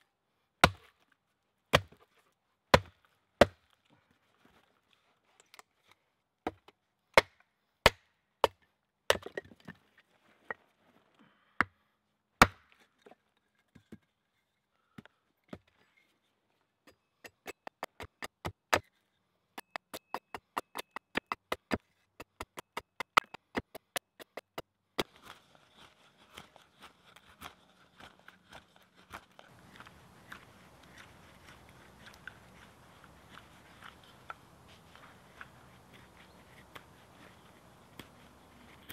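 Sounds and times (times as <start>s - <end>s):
axe chopping wood: 0.6s - 0.9s, 1.7s - 2.0s, 2.7s - 3.6s, 7.2s - 9.4s, 12.4s - 12.7s, 17.2s - 18.9s, 19.6s - 25.1s
wood being carved by hand: 1.7s - 2.0s, 2.7s - 3.6s, 16.9s - 18.9s, 19.6s - 25.2s, 27.3s - 38.9s.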